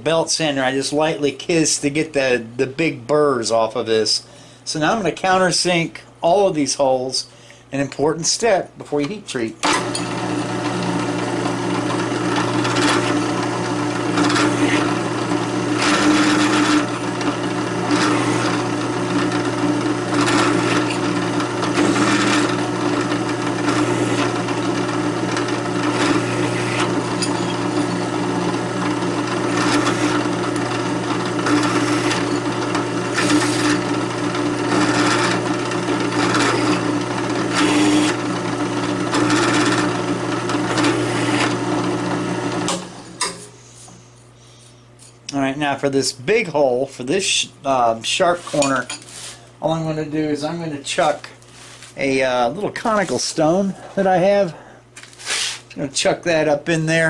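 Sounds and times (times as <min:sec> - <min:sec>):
drill press motor humming: 0:09.6 - 0:43.5
bit grinding into steel: 0:09.6 - 0:43.6.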